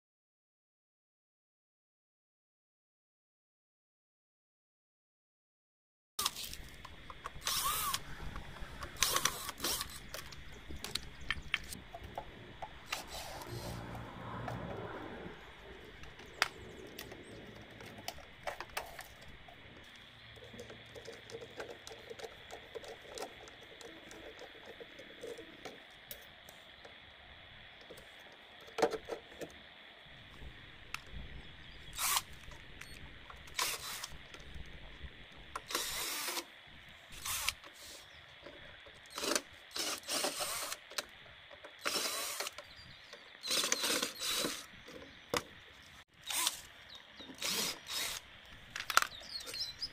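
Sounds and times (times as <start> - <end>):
clicks of small parts: 38.4 - 49.8.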